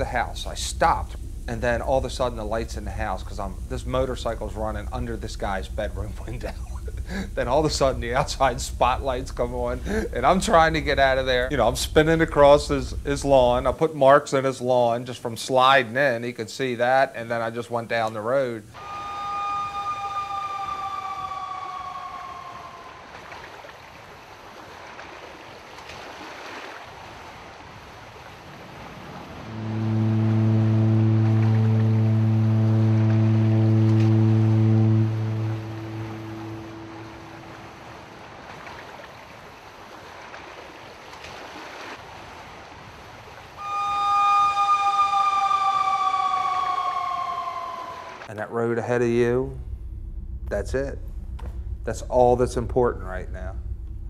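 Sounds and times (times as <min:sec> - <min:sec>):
distant two-note siren: 0:00.0 - 0:13.7, 0:18.7 - 0:23.6, 0:29.4 - 0:38.8, 0:43.6 - 0:48.3
soft steady rushing noise: 0:00.0 - 0:24.7, 0:27.7 - 0:40.1, 0:47.4 - 0:54.0
steady hiss: 0:00.0 - 0:24.9, 0:42.7 - 0:54.0
two-note horn: 0:29.4 - 0:38.0, 0:43.6 - 0:48.3.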